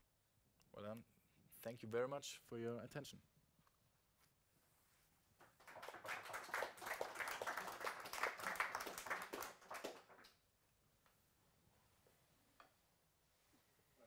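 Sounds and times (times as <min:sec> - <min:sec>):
small audience clapping: 0:05.4 - 0:10.5.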